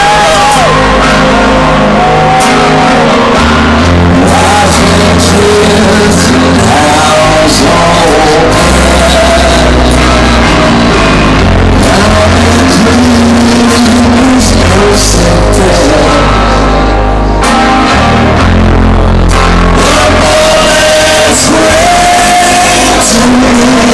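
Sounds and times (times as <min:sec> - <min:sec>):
drums: 0:00.0 - 0:16.4
person singing: 0:00.0 - 0:17.0, 0:19.6 - 0:23.9
bass guitar: 0:00.0 - 0:23.9
electric guitars: 0:00.0 - 0:23.9.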